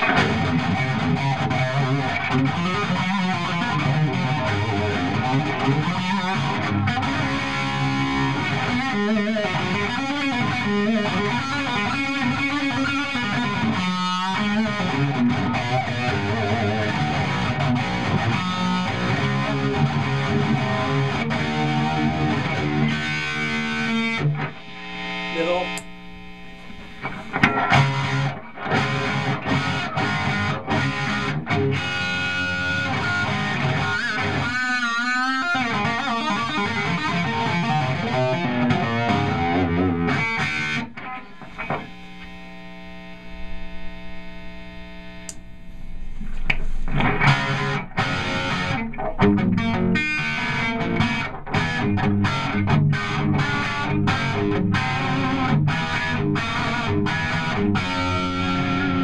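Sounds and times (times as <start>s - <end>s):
distorted electric guitar riffs: 0.0s - 59.0s.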